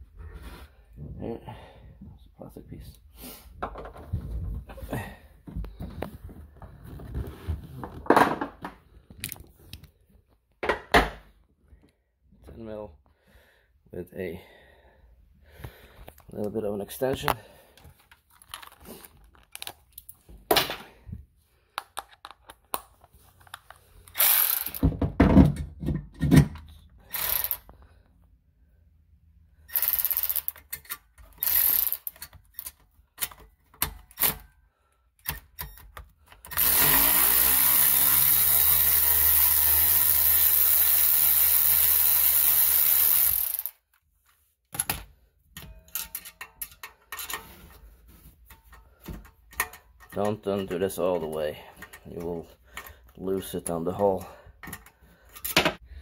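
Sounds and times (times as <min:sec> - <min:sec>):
power tool spinning: 0:24.1 - 0:24.9, 0:27.0 - 0:27.7, 0:29.7 - 0:30.6, 0:31.4 - 0:32.1, 0:36.5 - 0:43.8
ratchet clicks: 0:29.7 - 0:32.2, 0:36.5 - 0:43.8.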